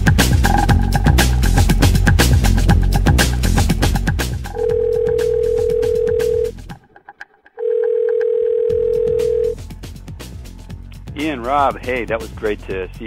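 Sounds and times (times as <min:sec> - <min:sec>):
electronic music with a beat: 0:00.0 - 0:03.9
telephone ringing tone beeps: 0:00.5 - 0:01.2, 0:04.5 - 0:06.5, 0:07.6 - 0:09.6.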